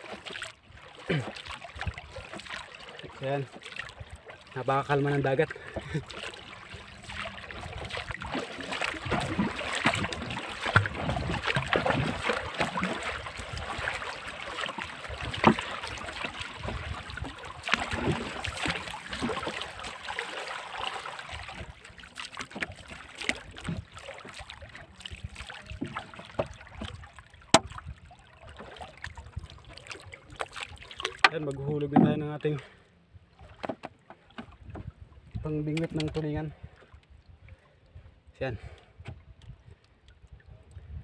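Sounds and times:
paddle splashing in water: 0.0 - 32.5, 33.3 - 37.7
sharp wooden knocks: 27.5 - 27.7.

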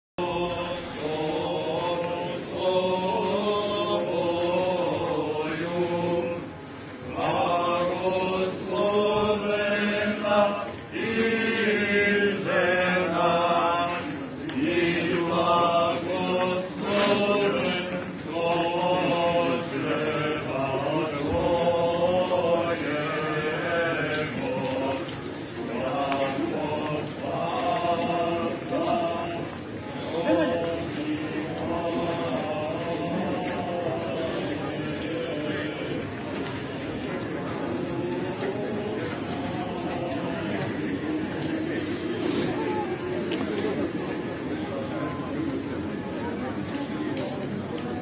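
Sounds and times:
crowd singing a chant: 0.2 - 44.8.

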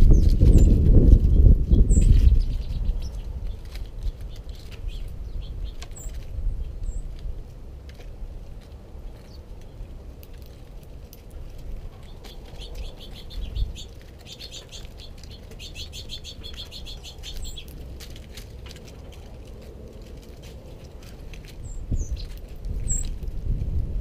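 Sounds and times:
birds pecking on wood: 0.0 - 23.8
bird chattering: 12.1 - 17.7.

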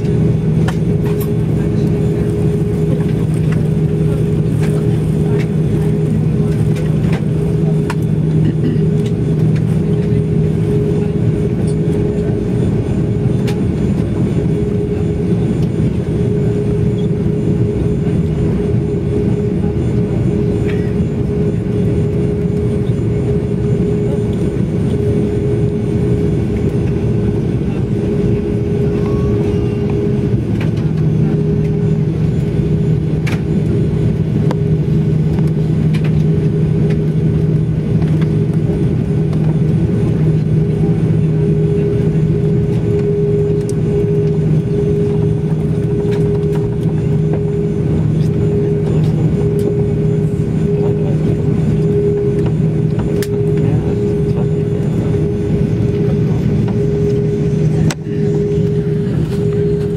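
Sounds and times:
airplane cabin drone: 0.0 - 59.9
steady higher engine tone: 0.0 - 59.9.

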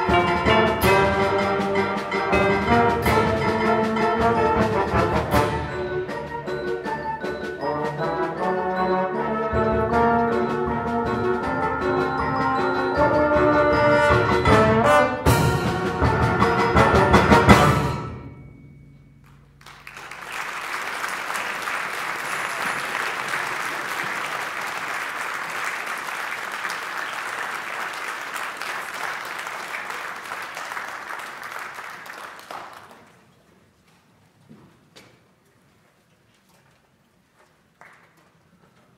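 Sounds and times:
concert band playing: 0.0 - 18.6
audience applauding: 19.6 - 33.2.

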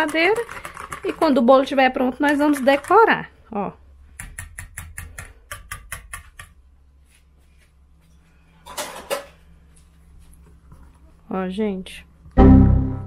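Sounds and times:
whisk clicking against bowl: 0.0 - 1.4, 2.2 - 3.1.

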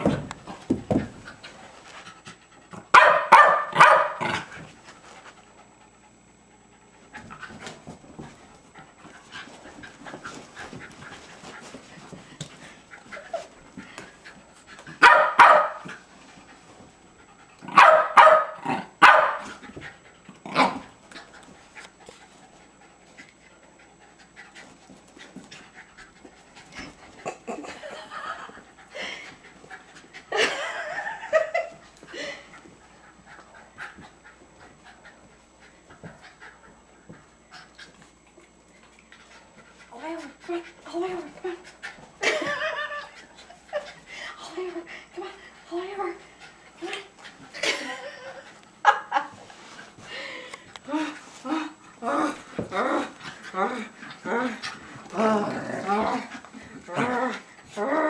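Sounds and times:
dogs barking: 2.9 - 4.4, 15.0 - 15.8, 17.7 - 19.4.

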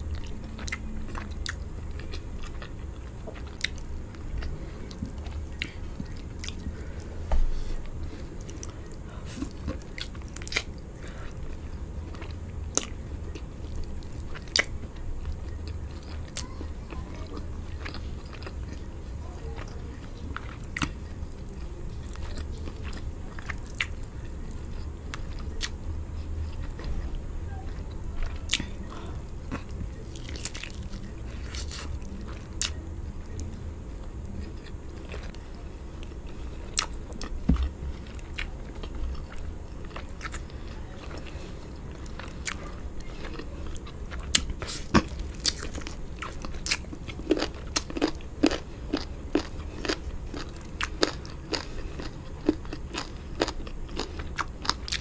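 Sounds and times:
close chewing and biting food: 0.0 - 55.0.

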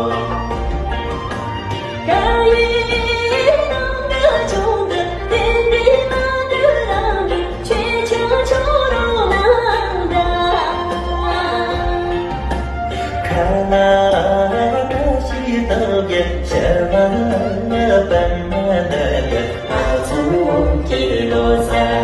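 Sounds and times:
instrumental backing: 0.0 - 22.0
person singing: 12.9 - 22.0.

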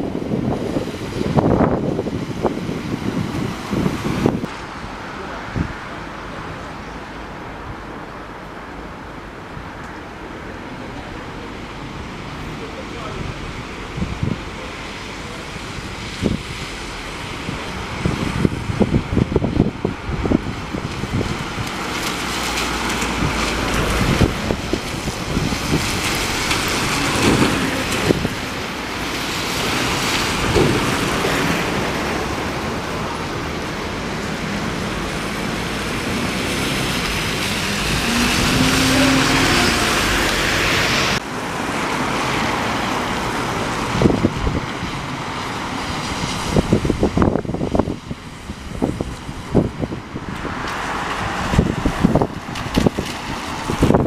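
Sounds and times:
wind noise on microphone: 0.0 - 6.0, 13.1 - 54.0
street traffic: 0.0 - 54.0
tyres hissing on wet road: 0.0 - 54.0.

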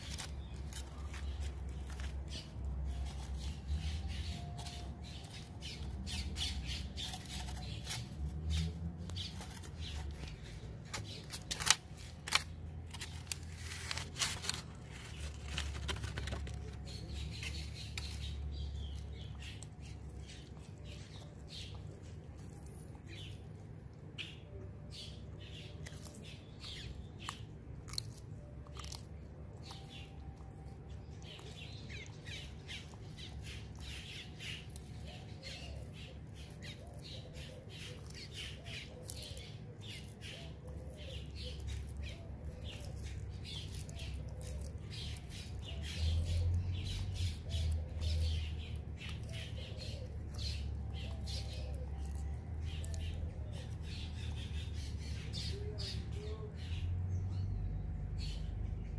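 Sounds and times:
tortoise chewing crunchy food: 0.0 - 58.9.

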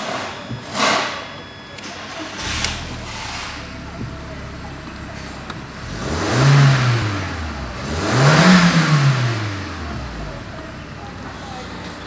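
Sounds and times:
car engine revving from idle: 2.4 - 11.5.

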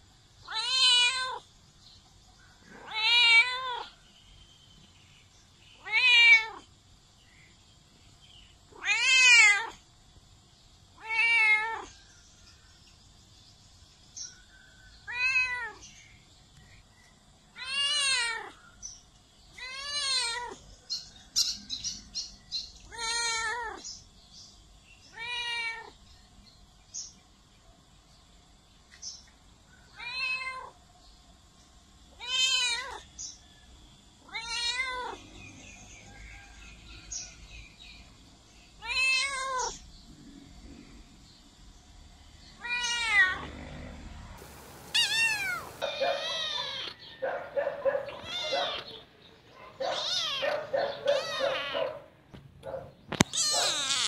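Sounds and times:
cat meowing: 0.5 - 1.4, 2.8 - 3.9, 5.8 - 6.7, 8.7 - 9.8, 11.0 - 11.9, 15.1 - 15.8, 17.6 - 18.6, 19.6 - 20.6, 22.9 - 23.8, 25.1 - 25.9, 30.0 - 30.7, 32.2 - 33.0, 34.3 - 35.2, 38.8 - 39.8, 42.6 - 43.5, 44.6 - 47.1, 48.0 - 49.0, 49.8 - 51.9, 53.1 - 54.0.

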